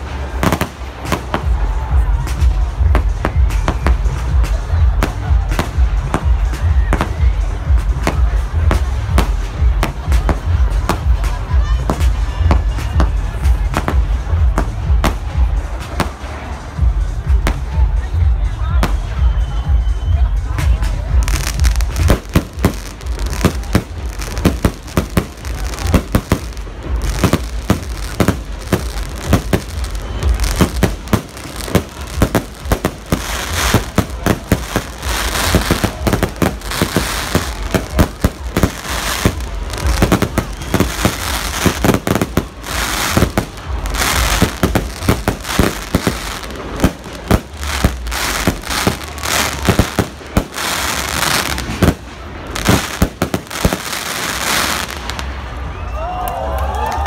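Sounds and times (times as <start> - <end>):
firework crackling: 0.0 - 18.2, 20.4 - 55.8.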